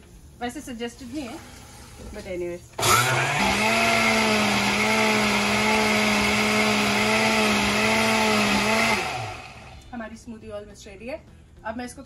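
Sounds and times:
blender motor whining: 2.8s - 9.9s.

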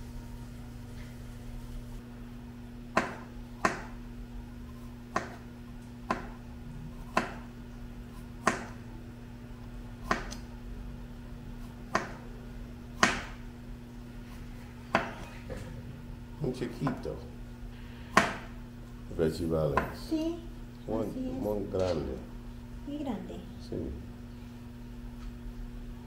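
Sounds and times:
steady low hum: 0.0s - 26.0s
knife chopping on plastic board: 2.9s - 4.0s, 5.1s - 6.4s, 7.0s - 7.5s, 8.2s - 8.8s, 10.0s - 10.4s, 11.6s - 12.2s, 12.9s - 13.4s, 14.9s - 15.3s, 18.1s - 18.5s.

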